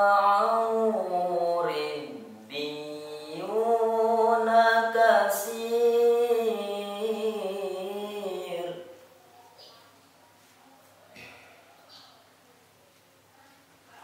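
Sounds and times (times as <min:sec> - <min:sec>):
boy reciting melodically: 0:00.0 - 0:10.0.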